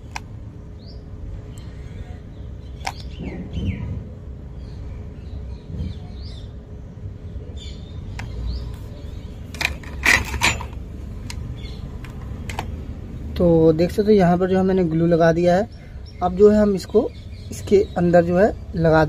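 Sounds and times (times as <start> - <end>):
faint birds chirping: 0.0 - 19.0
small hard parts clicking: 9.5 - 12.8.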